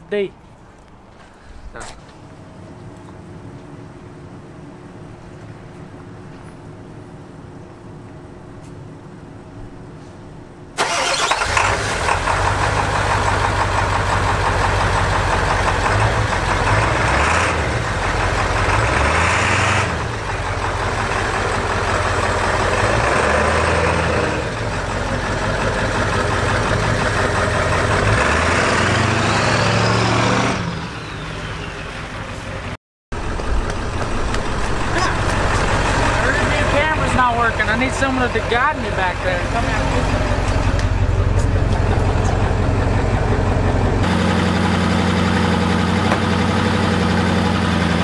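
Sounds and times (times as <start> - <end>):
pickup truck engine starting and running: 10.8 - 48.0.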